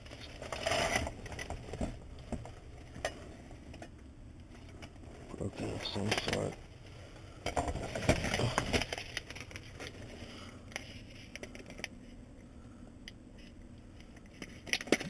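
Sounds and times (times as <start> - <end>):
plastic bags crinkling: 7.7 - 12.0.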